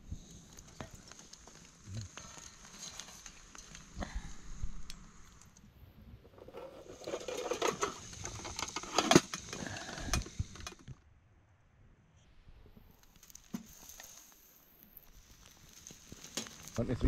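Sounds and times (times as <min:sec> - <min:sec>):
metal tray lid rattling: 0:06.5 - 0:09.5.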